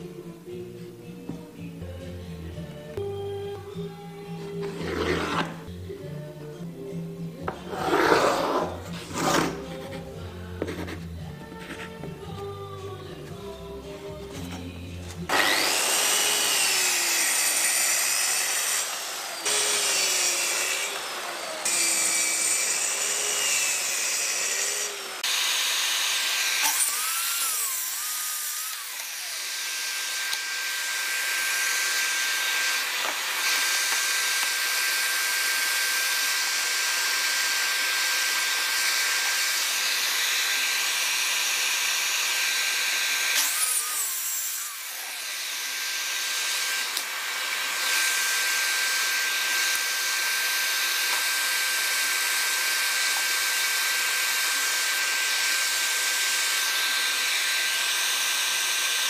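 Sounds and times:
track saw cutting plywood: 4.5 - 5.7, 7.5 - 12.0, 14.4 - 59.0
dust extractor whine: 13.4 - 59.0.

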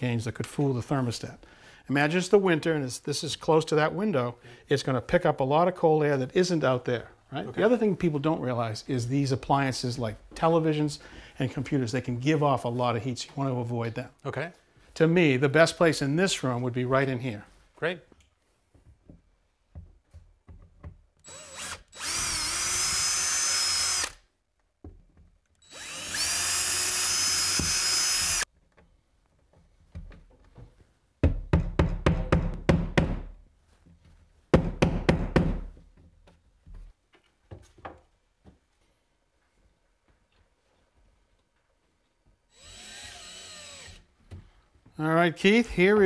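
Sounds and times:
cordless drill whining: 21.2 - 24.2, 25.6 - 28.5, 42.5 - 44.1.

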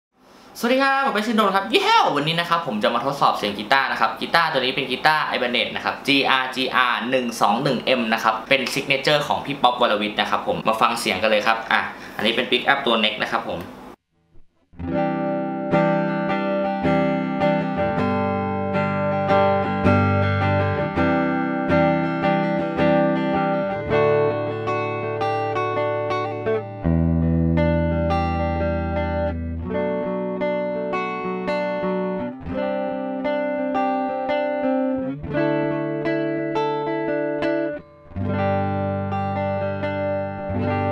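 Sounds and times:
clean electric guitar chords: 14.4 - 40.9.

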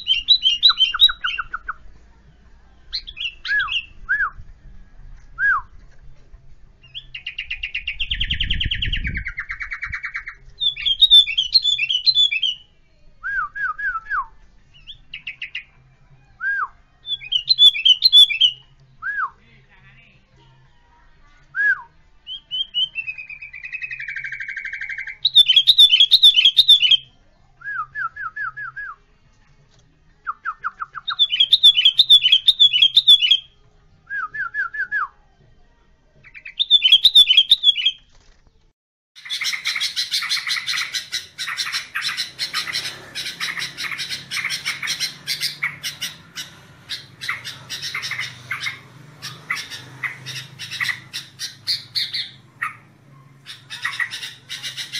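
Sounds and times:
bird whistled notes and trills: 0.0 - 1.8, 2.9 - 4.4, 6.8 - 15.7, 16.4 - 19.4, 21.6 - 29.0, 30.3 - 35.1, 36.3 - 38.1, 39.2 - 52.9
dense bird chattering: 39.2 - 54.9.

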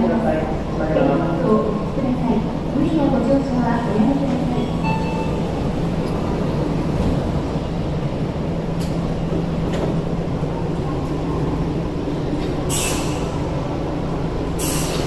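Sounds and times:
train equipment humming: 0.0 - 15.0
air hissing: 12.7 - 13.4, 14.6 - 15.0.

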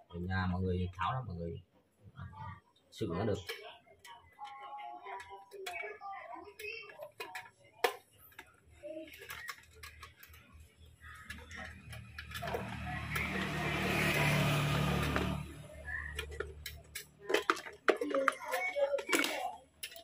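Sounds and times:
plastic and metal parts clicking: 3.4 - 13.8, 15.0 - 20.0
passing motor vehicle: 11.7 - 17.2.

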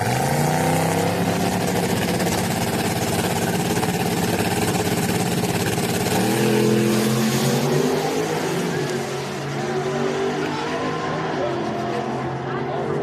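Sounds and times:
truck engines revving and accelerating: 0.0 - 2.6, 5.4 - 13.0.

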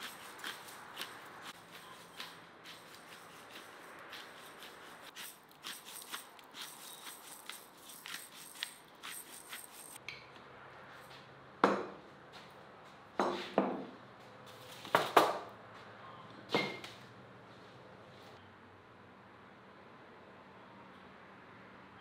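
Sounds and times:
seasoning shaker rattling: 0.0 - 10.0.

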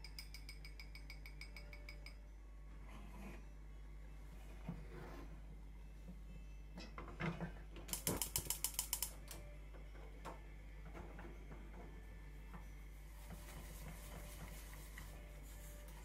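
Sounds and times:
gas igniter clicking rapidly: 7.9 - 9.3.

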